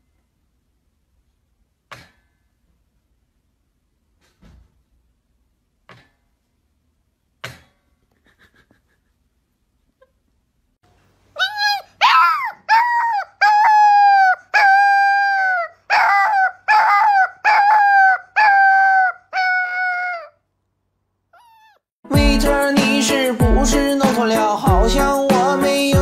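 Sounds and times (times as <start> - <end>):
puppy howling: 11.4 - 20.4, 21.4 - 21.8.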